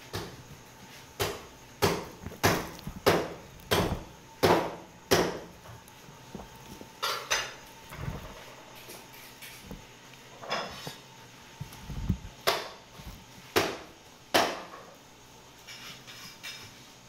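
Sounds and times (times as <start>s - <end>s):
dull thud: 1.2s - 5.5s.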